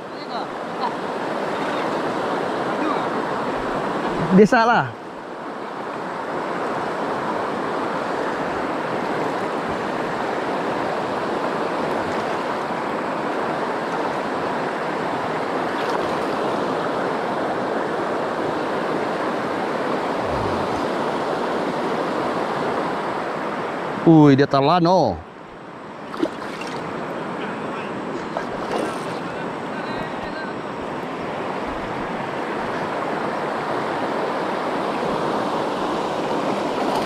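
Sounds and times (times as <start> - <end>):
river rushing over rocks: 0.0 - 24.0.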